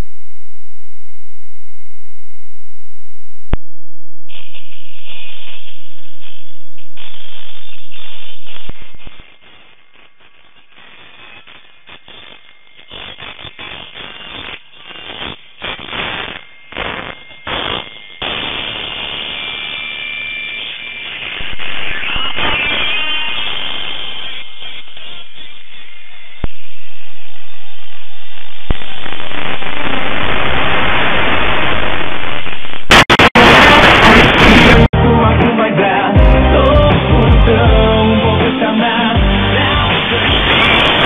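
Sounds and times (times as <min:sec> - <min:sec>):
shortwave radio hiss: 0:28.4 - 0:34.9.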